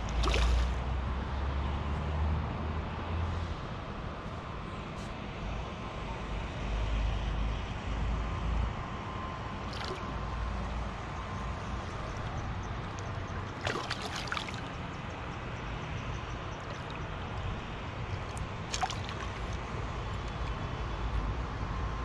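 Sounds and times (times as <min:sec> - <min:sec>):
water splashing: 0:00.0 - 0:00.9, 0:09.6 - 0:10.7, 0:11.6 - 0:15.0, 0:16.5 - 0:20.4.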